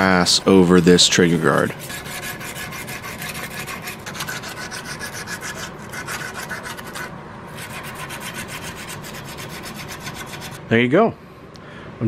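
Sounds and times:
sandpaper rubbing on metal: 1.2 - 10.6.

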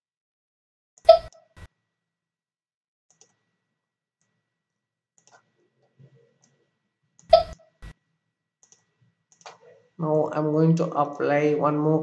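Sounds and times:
computer mouse clicks: 8.6 - 9.7.

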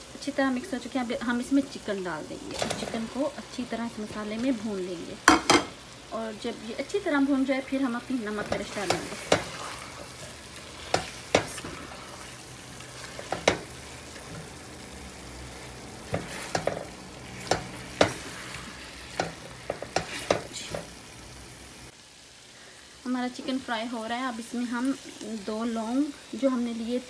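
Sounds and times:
chicken frying with steady sizzle: 0.0 - 27.0
spatula scraping and knocking pan: 5.2 - 5.8, 8.3 - 14.6, 16.0 - 21.0.

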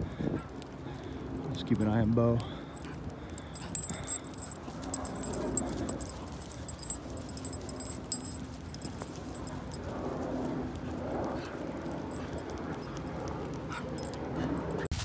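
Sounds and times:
dog collar tags jingling: 2.4 - 11.2, 11.8 - 14.9.

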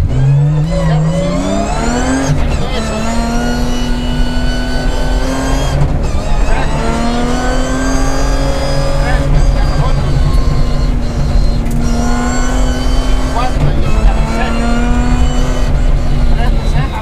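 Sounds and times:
car engine accelerating hard: 0.0 - 17.0.

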